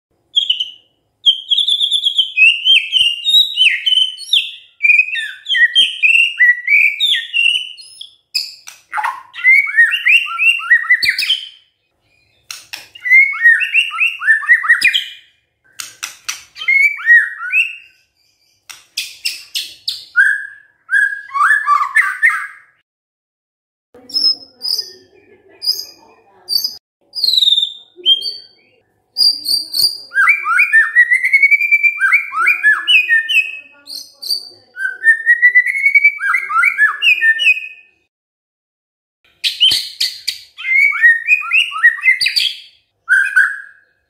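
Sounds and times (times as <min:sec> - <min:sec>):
bird whistled song: 0:00.3 - 0:22.8, 0:24.0 - 0:38.0, 0:39.4 - 0:44.0
bird sharp clicks: 0:12.4 - 0:13.0, 0:15.7 - 0:16.6, 0:18.6 - 0:20.0.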